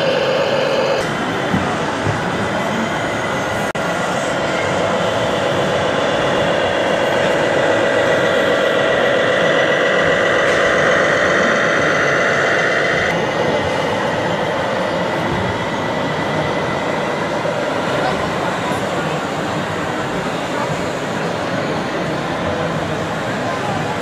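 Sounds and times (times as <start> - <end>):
toy truck motor whine: 0.0 - 1.0.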